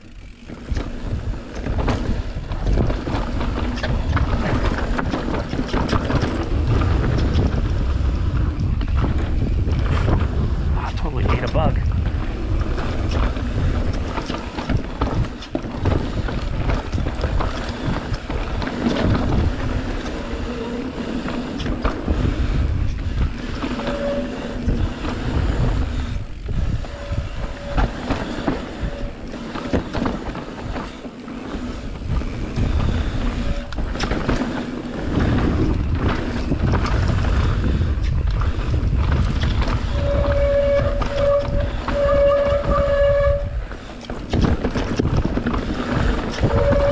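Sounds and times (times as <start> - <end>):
bike rattling: 0.0 - 46.9
tyres rumbling over dirt: 0.0 - 46.9
wind buffeting microphones: 0.0 - 46.9
short high squeals: 23.7 - 25.0, 26.8 - 29.8, 39.9 - 43.6.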